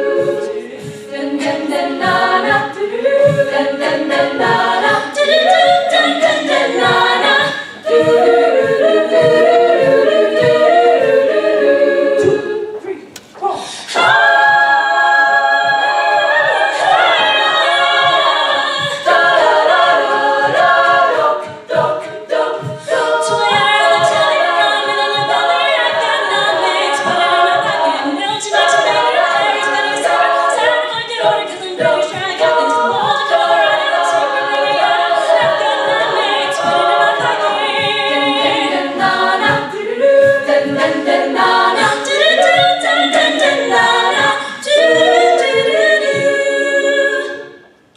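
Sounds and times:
women singing a cappella: 0.0s - 47.9s
beatboxed vocal percussion: 15.5s - 47.9s.

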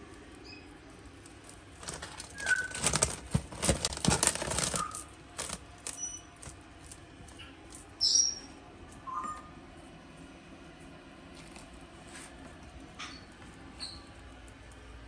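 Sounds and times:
lizard scratching and scrabbling: 0.9s - 8.0s.

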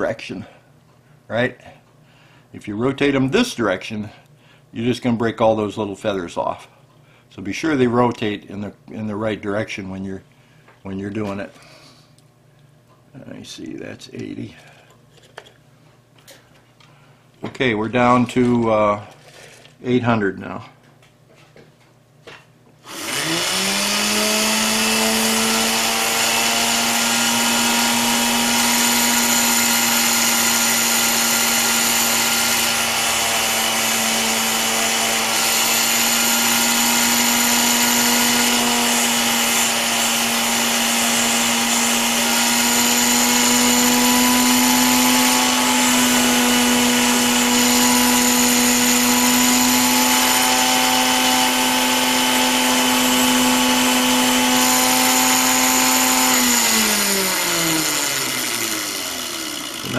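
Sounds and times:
rotary tool whine: 22.8s - 59.9s.

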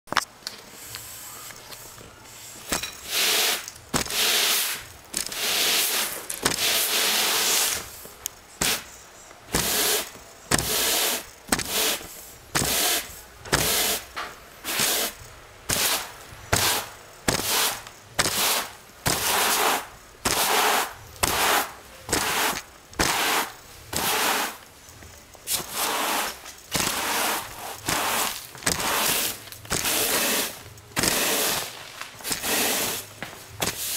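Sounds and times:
push broom sweeping floor: 0.7s - 33.9s.

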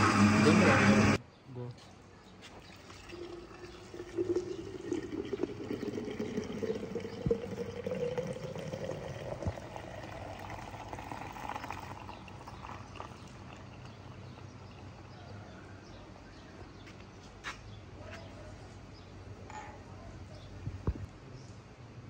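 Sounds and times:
drink being poured: 2.5s - 15.4s.

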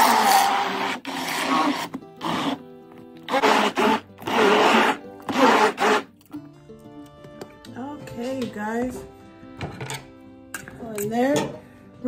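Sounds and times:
immersion blender running: 0.0s - 2.6s, 3.3s - 6.1s
background music: 0.0s - 12.0s.

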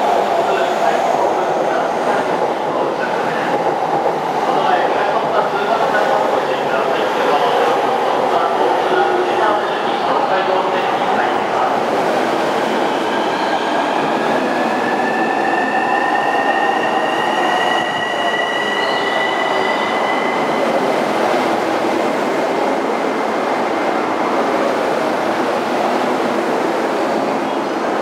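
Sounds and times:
high thin train whine: 4.8s - 23.5s.

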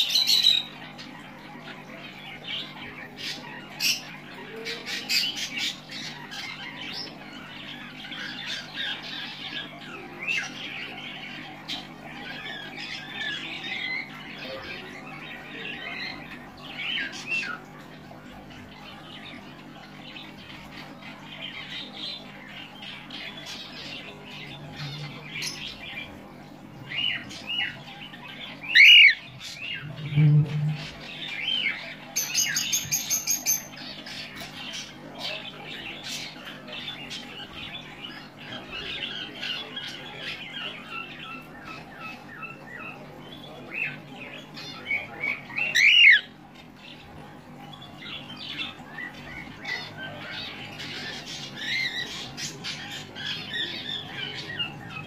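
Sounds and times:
cockatiel chirping and squawking: 28.7s - 29.2s.

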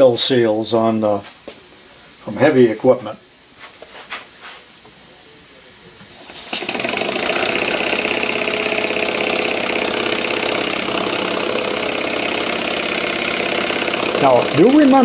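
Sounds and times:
exhaust hissing: 5.9s - 15.0s
model steam engine running fast: 6.2s - 15.0s.

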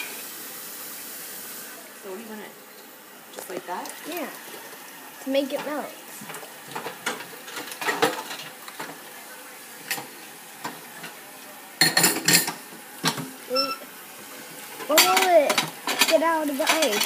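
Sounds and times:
dishes clattering: 5.6s - 9.0s, 11.8s - 13.8s, 14.8s - 17.0s.

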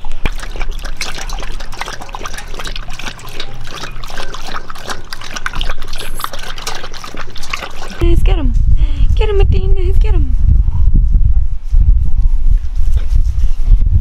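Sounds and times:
dogs lapping from metal bowl: 0.0s - 8.2s.

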